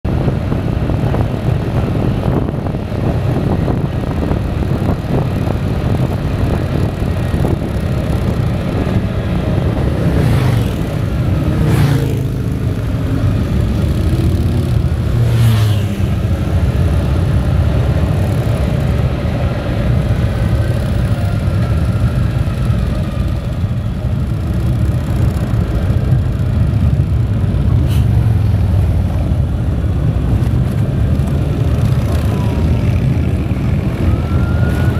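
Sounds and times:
wind rush: 0:00.0 - 0:34.9
motorcycle engine rumble: 0:00.1 - 0:34.9.

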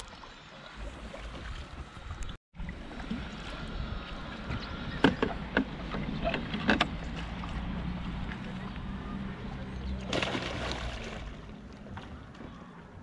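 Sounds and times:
paddle blades dipping and splashing: 0:00.0 - 0:09.2, 0:09.9 - 0:13.0
sharp splashes or knocks: 0:10.0 - 0:11.5.

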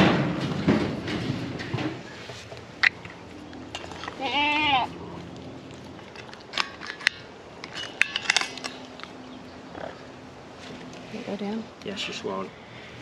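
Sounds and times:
goat bleating: 0:04.1 - 0:05.0.

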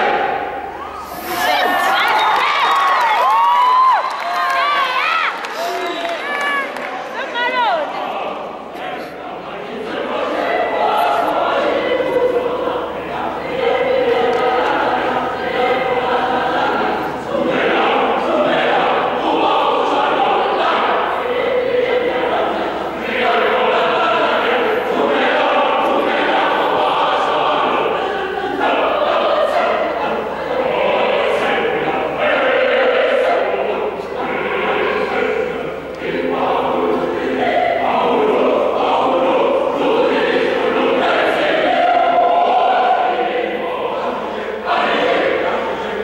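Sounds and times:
choir singing held chords: 0:00.0 - 0:46.0.

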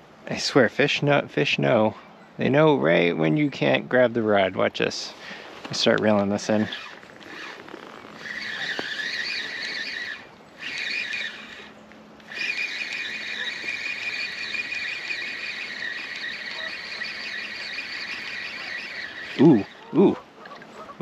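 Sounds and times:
fishing reel whirring: 0:06.5 - 0:20.8.

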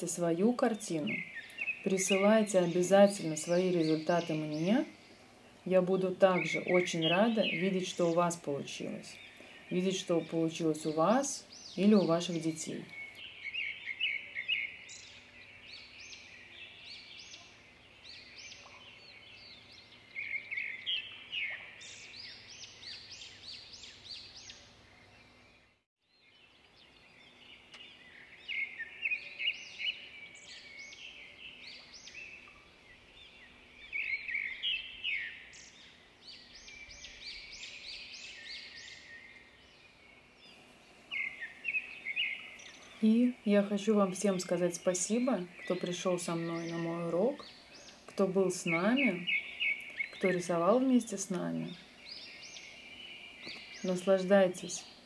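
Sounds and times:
small birds chirping and trilling: 0:00.0 - 0:55.0.

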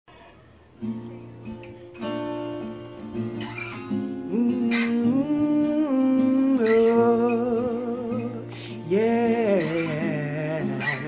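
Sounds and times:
acoustic guitar music: 0:00.1 - 0:11.0
person humming a tune: 0:04.3 - 0:11.0.

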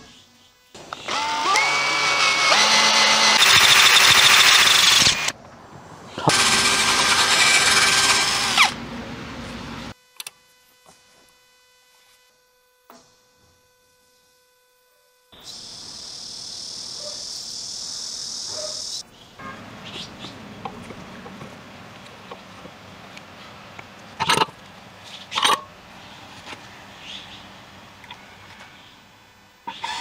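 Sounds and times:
electric drill boring into wood: 0:01.0 - 0:05.3, 0:06.2 - 0:08.8, 0:29.7 - 0:30.0.

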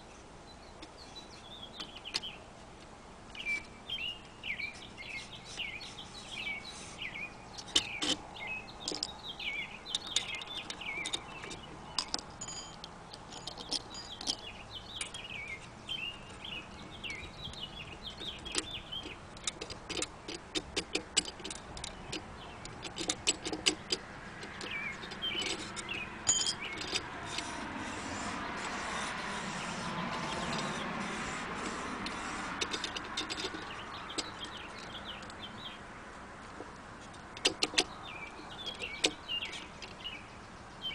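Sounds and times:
small birds chirping: 0:00.0 - 0:40.9
metal parts clicking and knocking: 0:08.8 - 0:09.2, 0:09.8 - 0:27.6, 0:30.1 - 0:35.4, 0:37.1 - 0:37.9, 0:38.5 - 0:40.0.

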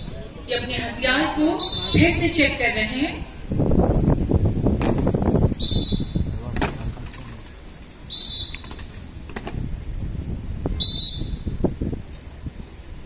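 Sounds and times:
shrill whistle blasts: 0:01.5 - 0:02.1, 0:05.5 - 0:06.3, 0:08.1 - 0:08.7, 0:10.8 - 0:11.6.

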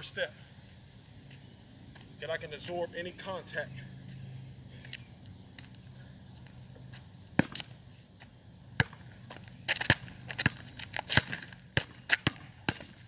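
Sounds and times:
basketball bouncing on asphalt: 0:04.8 - 0:13.0.

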